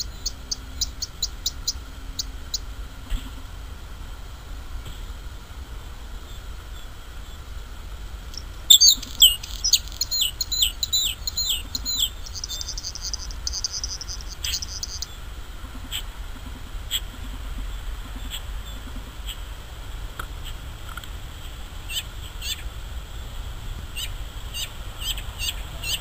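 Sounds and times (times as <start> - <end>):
buzzy bird trill: 0.0 - 2.7, 8.3 - 15.2
bird singing sharp falling notes: 8.7 - 15.1.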